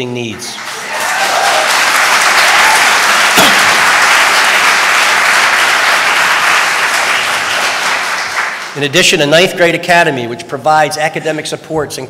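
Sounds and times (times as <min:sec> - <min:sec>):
audience applauding: 0:00.5 - 0:08.8.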